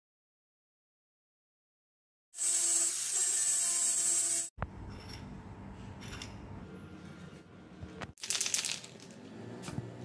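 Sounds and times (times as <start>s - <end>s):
angle grinder grinding steel: 2.4s - 4.5s
spray paint can rattling: 8.2s - 9.1s.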